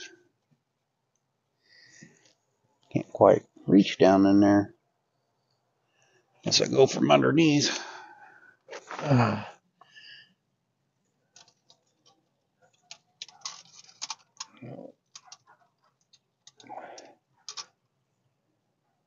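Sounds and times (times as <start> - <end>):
person grunting: 8.9 - 9.6.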